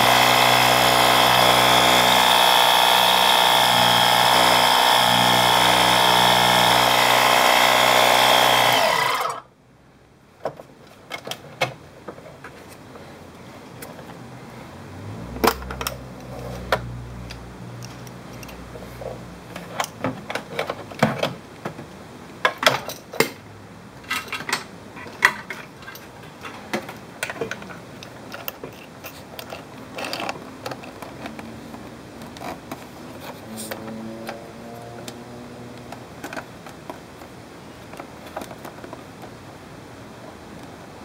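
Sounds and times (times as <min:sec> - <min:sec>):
equipment clicking and rattling: 0:25.2 - 0:31.4.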